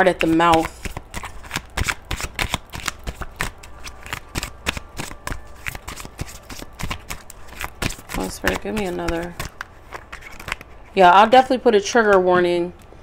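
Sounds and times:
cards being shuffled: 0.0s - 11.0s.

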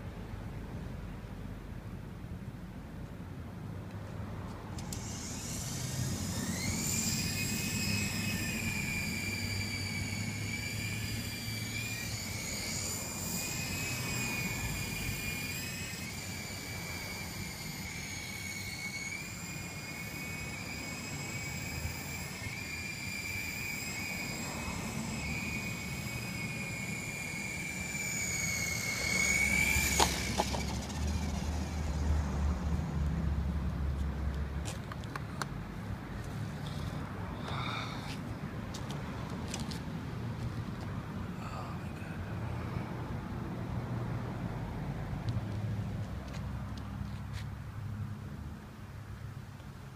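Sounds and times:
toy helicopter motor whining: 4.7s - 33.1s, 36.4s - 38.2s.

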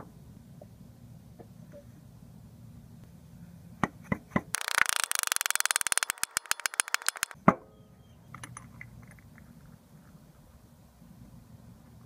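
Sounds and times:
mallet tapping metal pulley: 4.6s - 7.4s.

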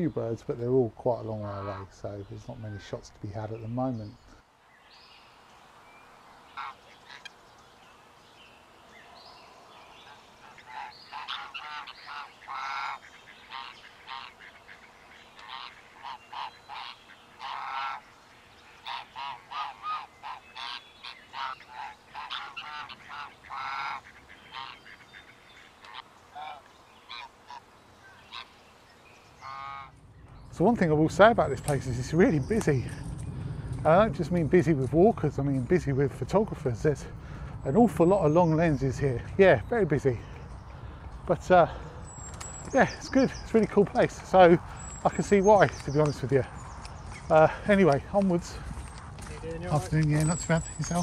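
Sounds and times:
geese honking: 1.1s - 3.6s, 6.2s - 7.4s, 9.1s - 33.1s, 33.8s - 51.0s.

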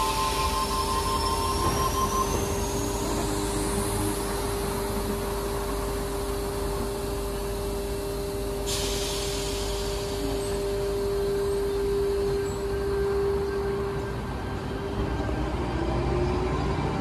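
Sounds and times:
train hiss: 0.0s - 5.2s, 8.5s - 15.1s
electric train hum and rumble: 0.0s - 17.0s.

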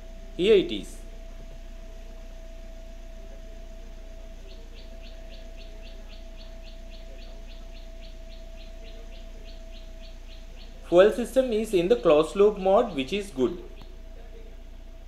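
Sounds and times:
bird chirping: 0.0s - 15.0s
car engine idling: 0.0s - 15.0s.

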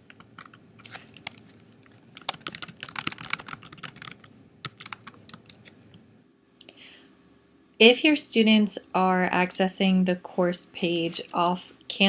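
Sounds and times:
computer keyboard typing: 0.0s - 5.8s.

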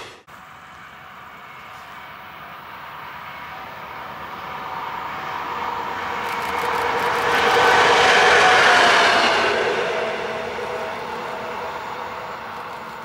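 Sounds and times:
steady whining tones: 0.0s - 13.0s
train wheels rolling on rails: 0.0s - 13.0s.

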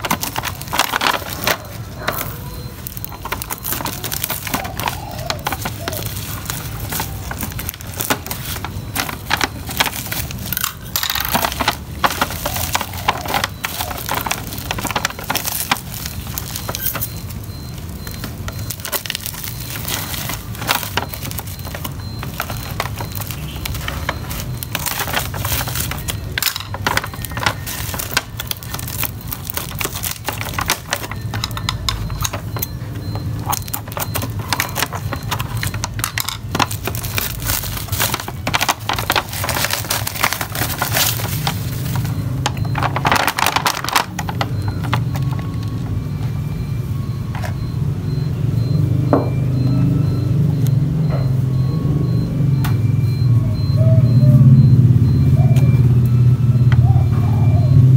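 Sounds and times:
scissors cutting plastic: 0.0s - 45.8s
plastic and bubble wrap crinkling: 0.0s - 47.9s.

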